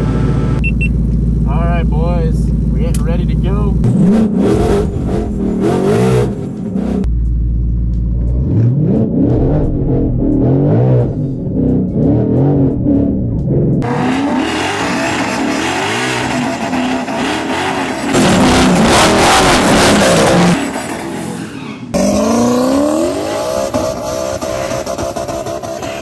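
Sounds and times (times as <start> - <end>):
car engine revving: 0.0 - 26.0
tyre squeal: 20.6 - 22.0.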